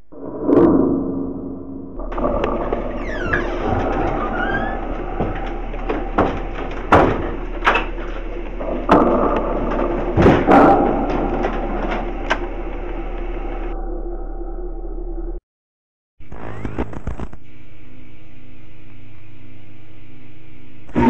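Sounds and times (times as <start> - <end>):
steady low hum: 0.0 - 15.4, 17.4 - 21.0
footsteps: 2.0 - 13.8.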